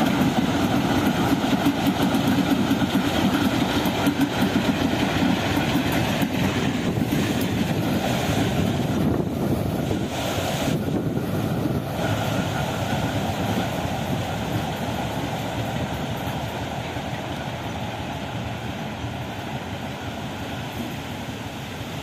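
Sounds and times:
diesel locomotive engine: 0:00.0 - 0:22.0
rail noise: 0:00.0 - 0:22.0
wind noise on microphone: 0:00.1 - 0:14.9.

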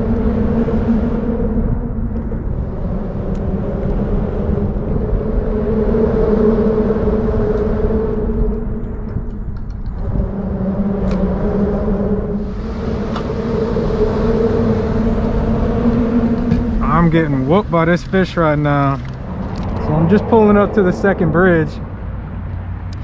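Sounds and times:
road traffic rumble: 0:00.0 - 0:23.0.

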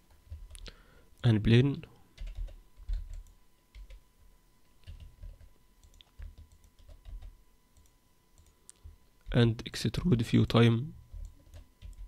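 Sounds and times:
computer keyboard and mouse clicks: 0:04.8 - 0:08.9.

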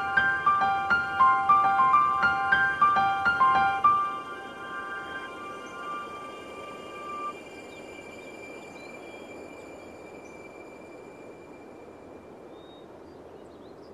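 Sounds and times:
held synth notes: 0:00.0 - 0:09.1
faint high bird chirps: 0:00.0 - 0:13.9
outdoor ambience: 0:00.0 - 0:13.9.

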